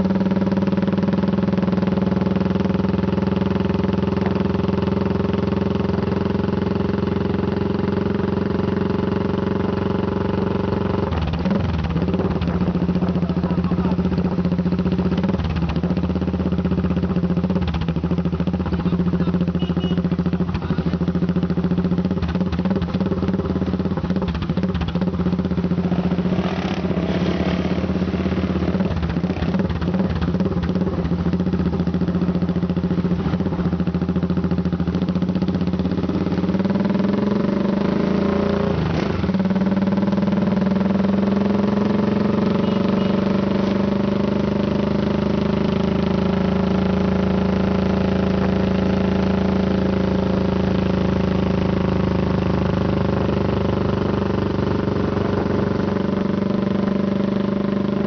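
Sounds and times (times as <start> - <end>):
engine droning steadily: 0.0 - 58.0
motorcycle engines passing: 24.1 - 34.5, 36.0 - 44.6.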